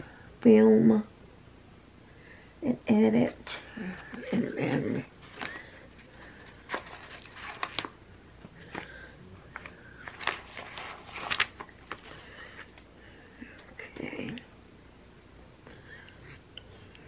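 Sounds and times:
paper crinkling and rustling: 3.8 - 12.8.

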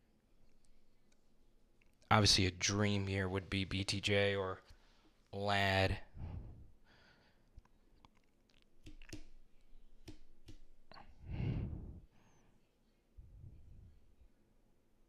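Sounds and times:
breath on microphone: 6.1 - 7.4, 10.9 - 12.5.

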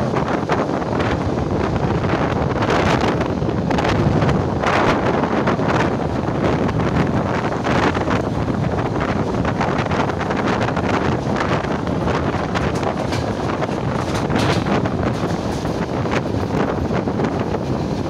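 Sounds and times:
train running on rails: 0.0 - 18.0
wind buffeting microphone: 0.0 - 18.0.

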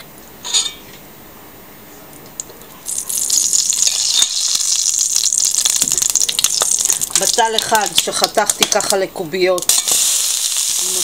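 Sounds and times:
oil sizzling in frying pan: 2.9 - 8.9, 9.6 - 11.0.

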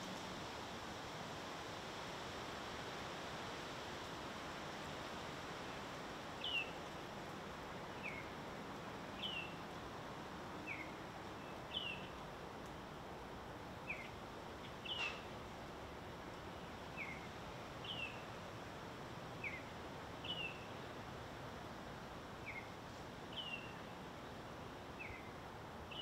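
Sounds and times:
background hiss: 0.0 - 26.0
songbird chirping: 10.7 - 12.2, 13.8 - 15.3, 16.5 - 18.3, 19.4 - 20.8, 22.4 - 23.9, 25.0 - 25.3.

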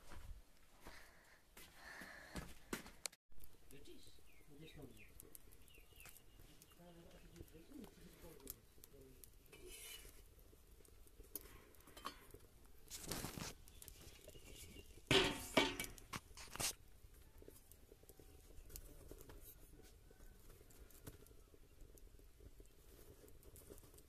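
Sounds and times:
wood fire crackling: 0.0 - 24.0
tongs scraping and rustling: 9.4 - 10.3, 11.4 - 16.8.

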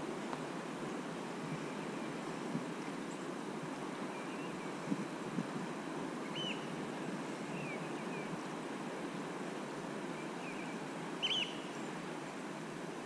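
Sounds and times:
fast-flowing river water: 0.0 - 13.0
bird chirping: 6.3 - 6.7, 10.4 - 11.9.

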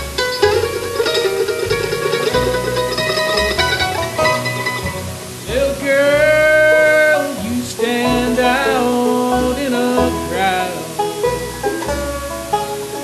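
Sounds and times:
bluegrass band playing: 0.0 - 13.0
man singing: 5.4 - 11.0.

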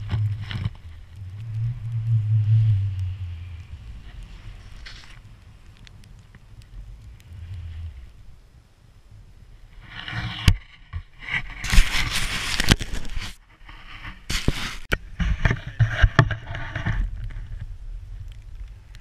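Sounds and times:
wind rumble on microphone: 0.0 - 19.0
skis hissing through snow: 14.3 - 14.9.

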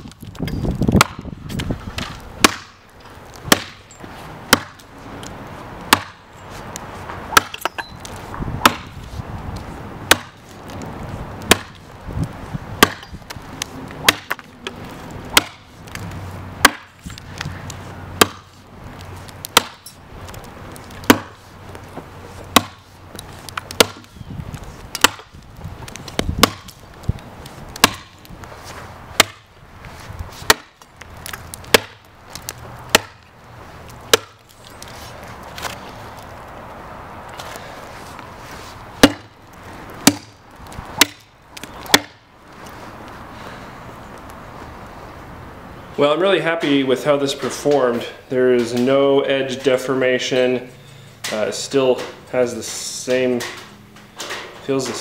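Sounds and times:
machete chopping into tree trunk: 0.9 - 1.3, 2.0 - 2.8, 3.5 - 3.8, 4.5 - 4.8, 5.9 - 6.2, 7.3 - 7.9, 8.6 - 9.0, 10.1 - 10.4, 11.5 - 11.8, 12.8 - 13.2, 14.0 - 14.4, 15.3 - 15.7, 16.6 - 17.0, 18.2 - 18.5, 19.5 - 19.9, 21.0 - 21.4, 22.5 - 22.8, 23.6 - 24.1, 24.9 - 25.3, 26.1 - 26.7, 27.8 - 28.2, 29.2 - 29.5, 30.4 - 32.0, 32.9 - 33.2, 34.1 - 34.4, 39.0 - 39.4, 40.0 - 40.4, 41.0 - 42.2.

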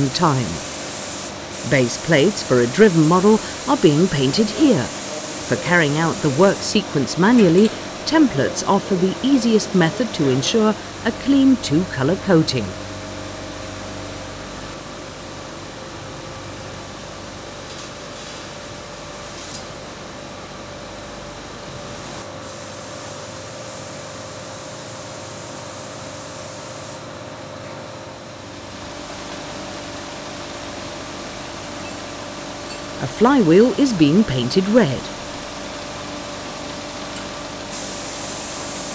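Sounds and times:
spray gun hissing: 0.0 - 8.1, 21.9 - 24.1, 24.7 - 27.0, 37.7 - 38.9
machine and ventilation hum: 0.0 - 38.9.

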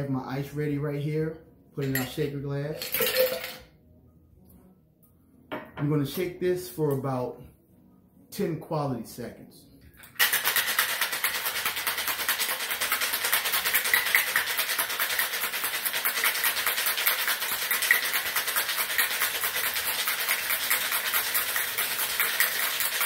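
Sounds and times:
ice rattling in cocktail shaker: 2.8 - 3.6, 10.0 - 23.0.

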